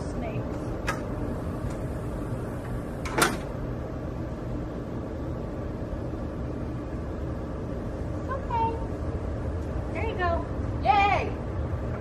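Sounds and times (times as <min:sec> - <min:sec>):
low background hum: 0:00.0 - 0:12.0
gate latch clicking shut: 0:03.0 - 0:03.5.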